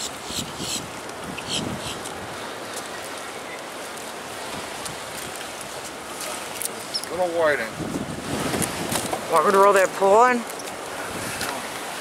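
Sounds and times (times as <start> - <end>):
ocean surf: 0.0 - 12.0
steady wind: 0.0 - 12.0.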